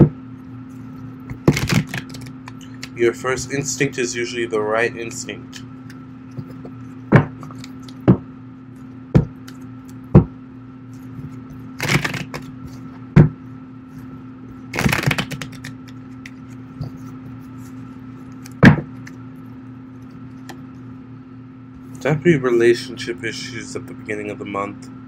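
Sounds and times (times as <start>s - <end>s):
low background hum: 0.0s - 25.0s
cards riffling: 1.3s - 2.9s, 11.0s - 12.9s, 14.7s - 17.2s
cards snapping: 1.3s - 2.9s, 11.3s - 12.8s, 14.7s - 17.0s.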